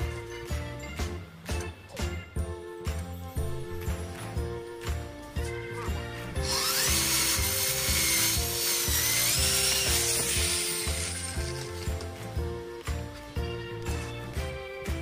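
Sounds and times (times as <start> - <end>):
background music with steady beat: 0.0 - 15.0
electric drill boring into wood: 6.4 - 12.0.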